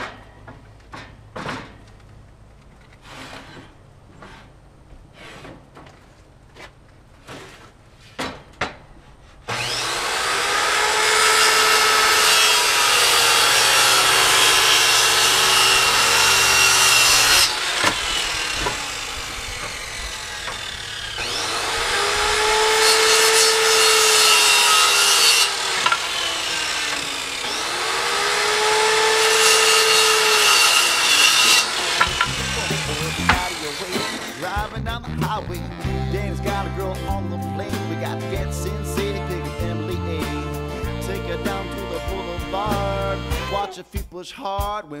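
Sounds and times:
power saw cutting wood: 3.0 - 4.6, 9.3 - 37.0, 37.6 - 43.7.

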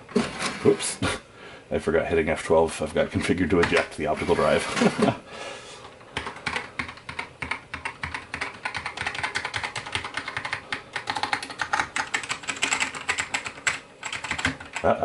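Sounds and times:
keyboard keystroke clacks: 6.2 - 14.8.

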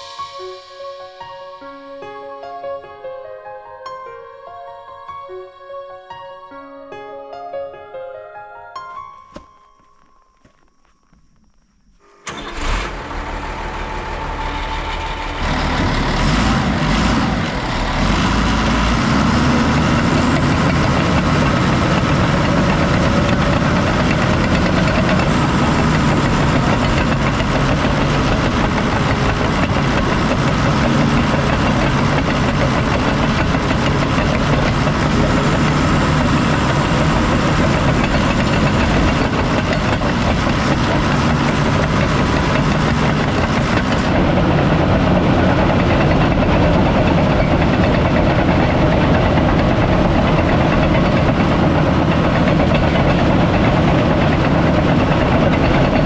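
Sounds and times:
steel tracks clattering on gravel: 9.3 - 12.0, 19.2 - 56.0
bulldozer diesel engine: 12.0 - 56.0.

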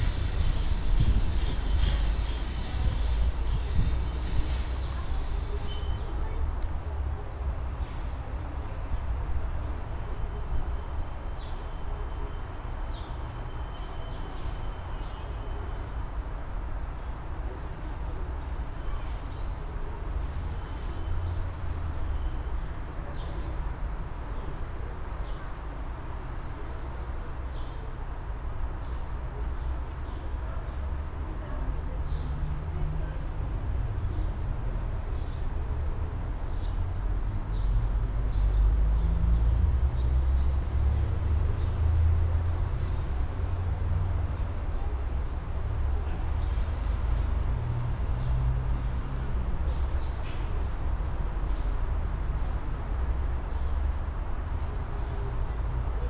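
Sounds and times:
tram rumbling at platform: 0.0 - 16.9
city traffic: 0.0 - 56.0.

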